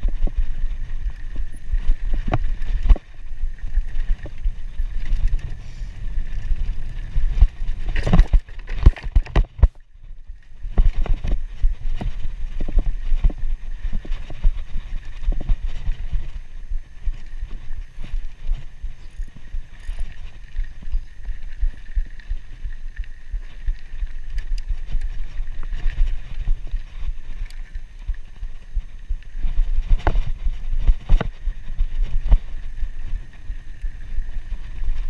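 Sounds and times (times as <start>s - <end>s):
bike knocks and rattles: 0.0s - 9.8s
bike tyres rumbling on dirt: 0.0s - 35.0s
wind buffeting microphone: 0.0s - 35.0s.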